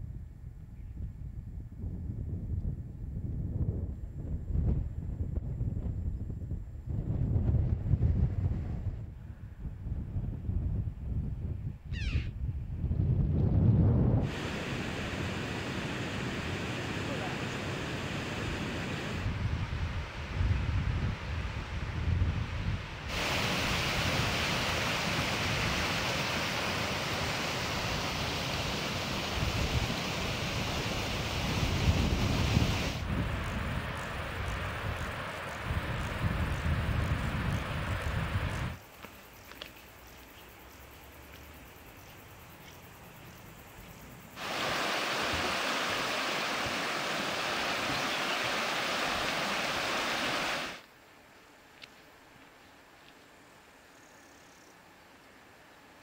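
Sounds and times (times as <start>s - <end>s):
wind rumbling on microphone: 0.0s - 38.8s
flowing water rushing: 14.3s - 19.3s, 23.0s - 35.7s, 44.4s - 50.9s.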